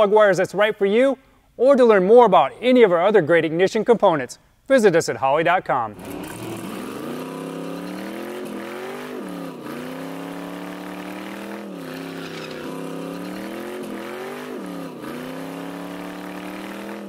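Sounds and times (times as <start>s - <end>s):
drag car engine revving: 5.9s - 17.0s.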